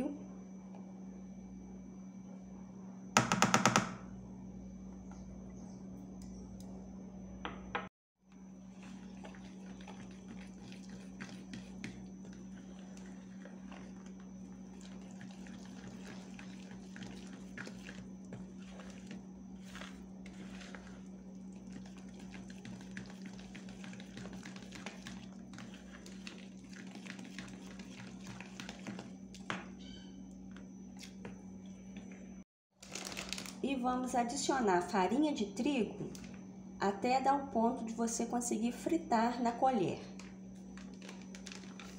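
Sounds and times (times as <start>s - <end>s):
steady low hum: 4.0s - 32.4s
spoon scraping plastic tub: 8.7s - 29.6s.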